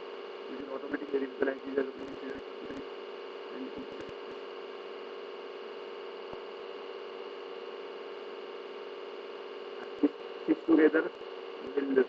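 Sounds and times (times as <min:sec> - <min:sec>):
electrical hum with hiss: 0:00.0 - 0:12.0.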